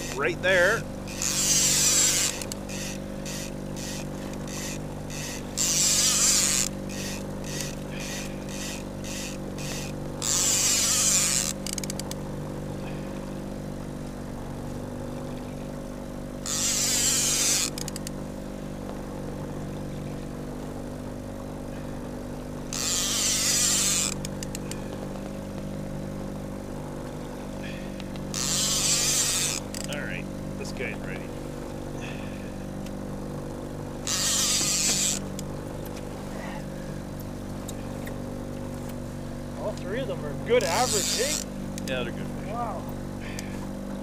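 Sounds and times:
fishing reel ticking: 0.0s - 14.2s, 15.3s - 18.9s, 21.6s - 25.8s, 27.0s - 30.8s, 32.7s - 36.5s, 40.5s - 41.9s
boat engine drone: 0.0s - 44.0s.

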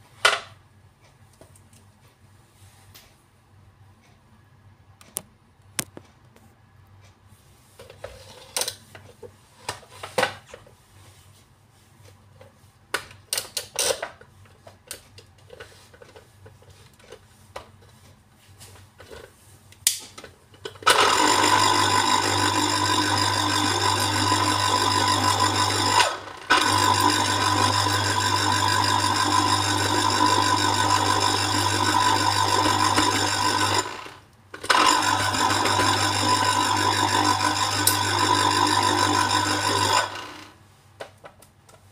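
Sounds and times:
citrus juicer motor whirring: 20.8s - 40.6s.

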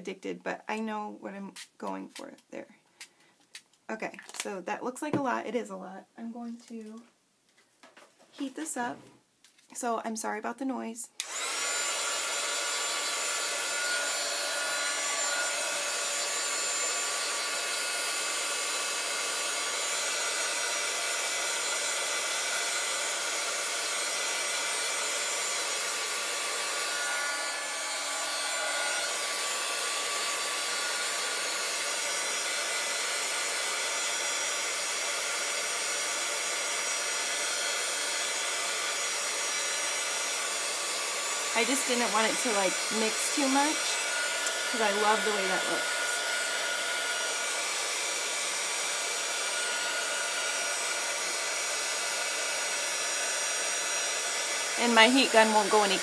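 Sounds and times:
heat gun blowing hiss and whine: 11.2s - 56.0s.

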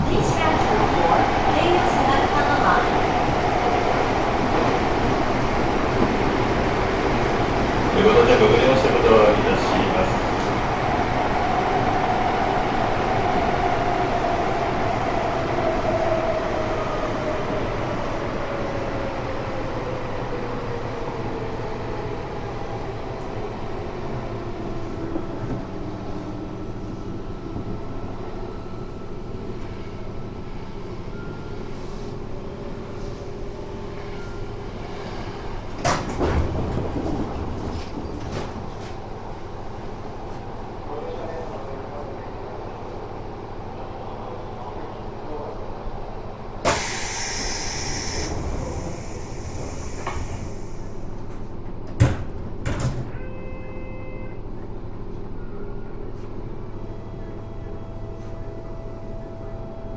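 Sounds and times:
train rolling rumble: 0.0s - 53.2s.

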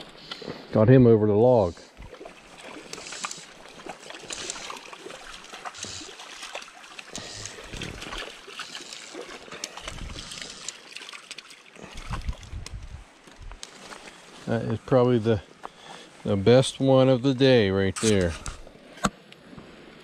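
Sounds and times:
stream trickling over stones: 1.5s - 14.4s
fish splashing: 1.9s - 12.6s
fishing line clicks: 4.2s - 4.8s, 7.2s - 11.5s.

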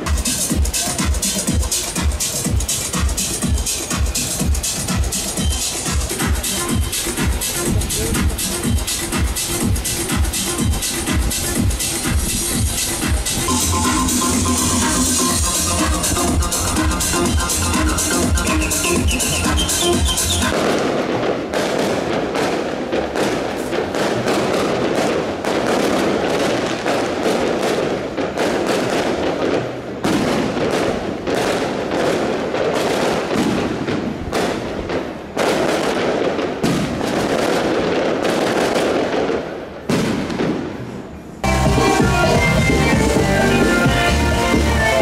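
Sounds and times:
fireworks bangs and crackles: 0.0s - 45.0s.

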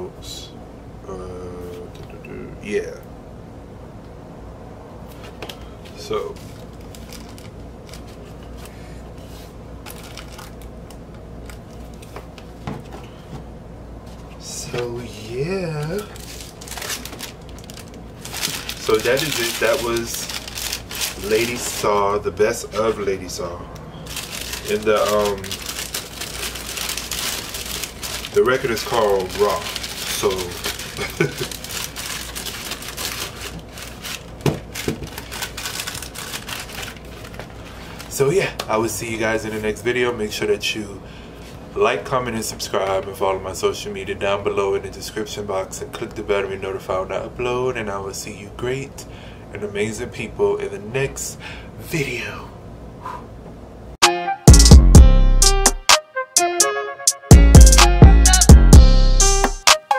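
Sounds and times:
steady low hum: 0.0s - 54.0s
plastic sleeve crinkling: 5.9s - 12.2s, 16.0s - 23.0s, 24.1s - 38.6s.

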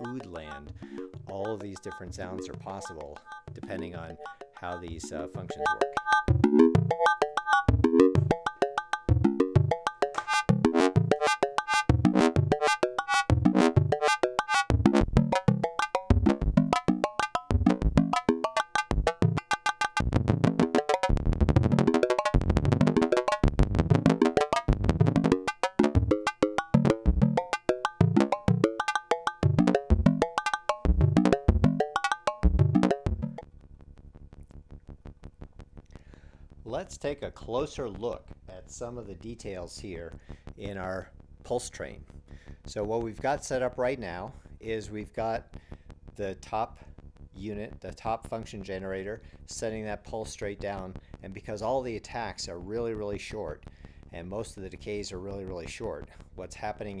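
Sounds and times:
synthesizer drum-like hits: 20.0s - 28.8s, 29.4s - 33.4s.

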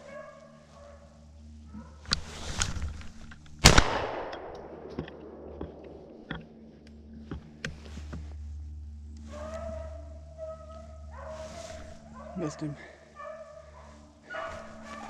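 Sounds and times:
shotgun shot with echo: 3.6s - 5.8s
sharp crack: 3.6s - 6.4s.

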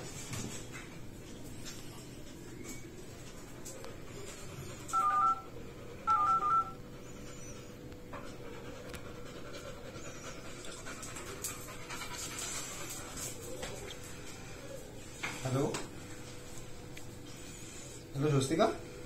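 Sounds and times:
phone keypad dialing beeps: 4.9s - 5.5s, 6.1s - 6.8s.

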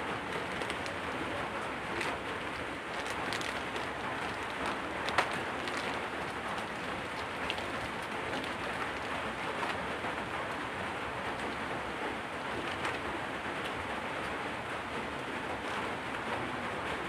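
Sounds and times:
steady rain: 0.0s - 17.0s
plastic wrapper crackling: 0.2s - 9.8s.

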